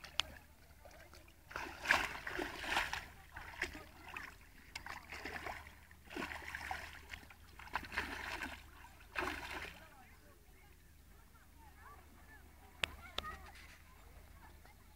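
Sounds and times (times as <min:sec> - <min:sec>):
dog splashing in water: 0:01.5 - 0:09.9.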